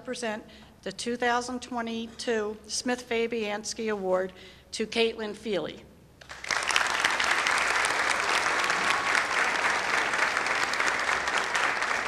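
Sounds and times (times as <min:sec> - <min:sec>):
audience applauding: 0:06.2 - 0:12.0.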